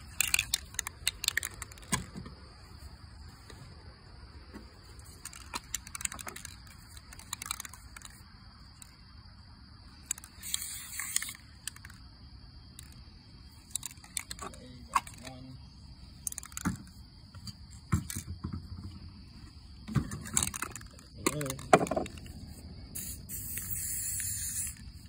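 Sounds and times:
cans and metal cup clicking: 0:00.0 - 0:02.1, 0:20.2 - 0:22.3
insects droning: 0:00.0 - 0:25.0
spray can hissing: 0:10.4 - 0:11.3, 0:22.9 - 0:25.0.

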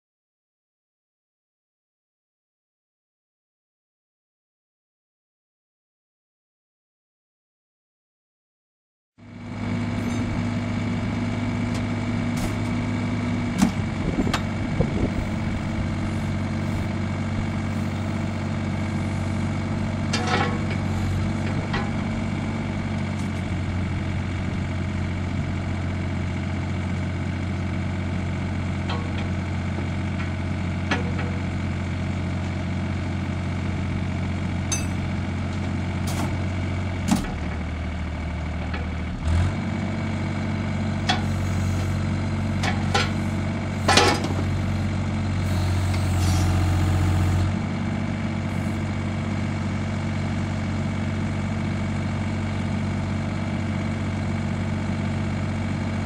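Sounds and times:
diesel engine idling: 0:09.2 - 0:56.0
sharp metallic clanks: 0:34.7 - 0:35.1.

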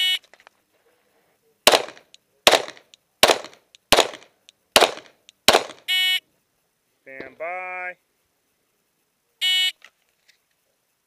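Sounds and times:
pistol shots: 0:01.7 - 0:05.9.

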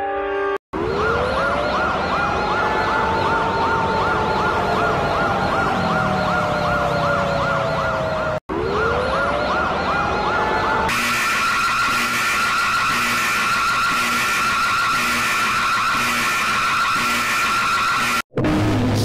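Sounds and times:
warbling siren alert tone: 0:00.7 - 0:18.3
bright alarm tone: 0:00.8 - 0:18.3.

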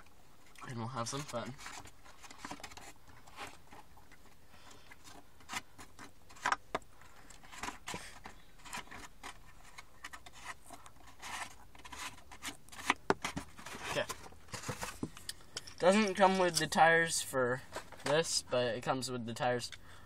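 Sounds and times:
paper pulp scraping and rustling: 0:00.7 - 0:03.9, 0:07.2 - 0:15.1.

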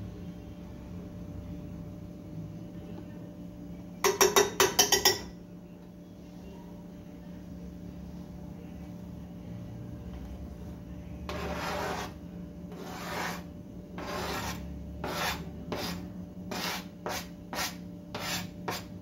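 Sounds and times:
spatula scraping frying pan: 0:11.3 - 0:18.9.

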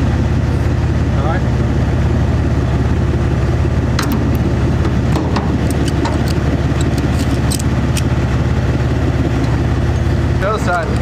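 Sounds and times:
vehicle engine idling: 0:00.0 - 0:11.0
ratchet strap clicking: 0:05.4 - 0:08.2.

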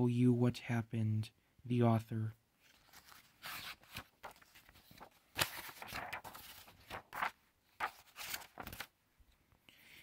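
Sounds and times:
book pages turning: 0:02.6 - 0:09.0.

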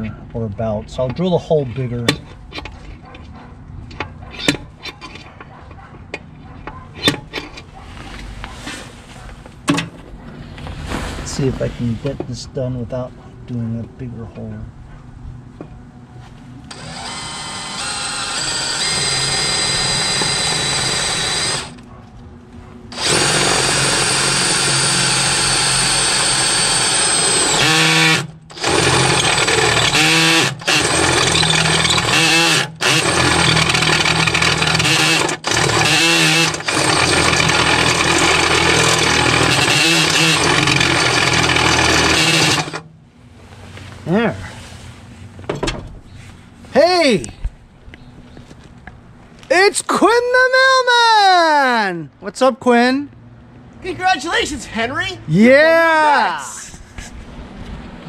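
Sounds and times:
cordless drill boring metal: 0:16.7 - 0:21.8, 0:22.9 - 0:42.8.

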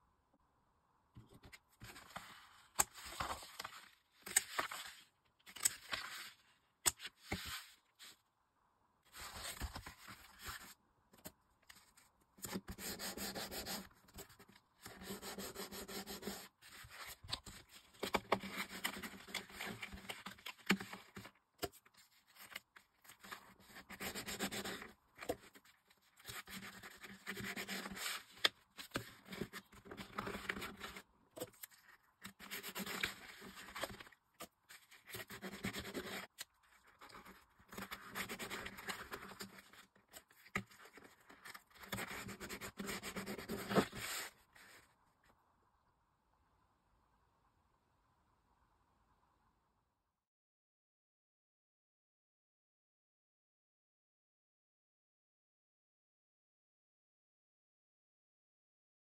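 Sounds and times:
cardboard rubbing and scraping: 0:34.7 - 0:44.8.

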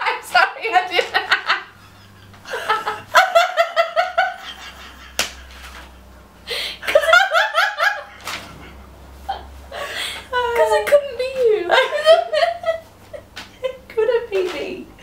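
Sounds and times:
women laughing hard: 0:00.9 - 0:10.2, 0:11.7 - 0:13.8.

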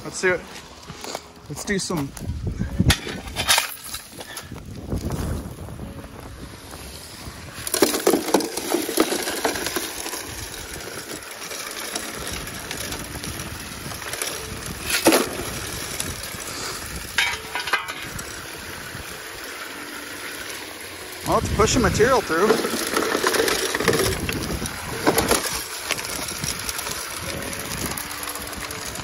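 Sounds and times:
rocks clattering: 0:00.1 - 0:05.6, 0:07.5 - 0:29.0
water running through sluice: 0:07.2 - 0:29.0
shovel digging into gravel: 0:07.6 - 0:18.2, 0:21.3 - 0:28.0.

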